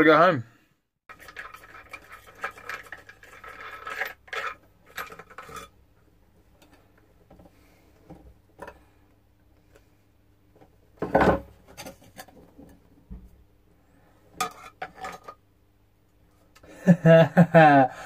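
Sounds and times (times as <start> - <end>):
metal clinking and scraping: 1.1 - 5.8, 14.4 - 15.4.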